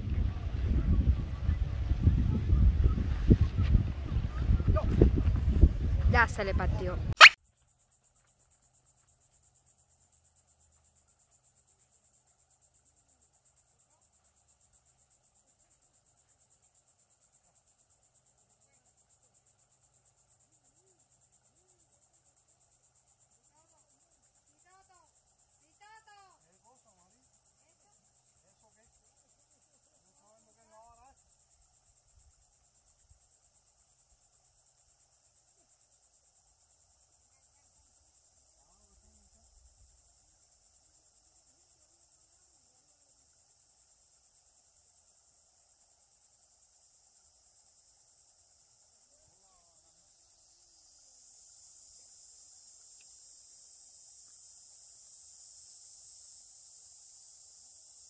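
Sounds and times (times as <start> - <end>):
insect trilling: 7.2 - 7.4, 46.7 - 58.0.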